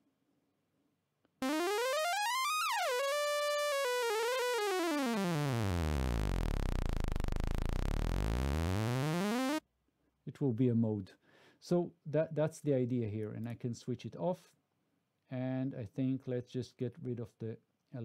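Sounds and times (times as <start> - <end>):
synth note sweeping in pitch: 1.4 - 9.6.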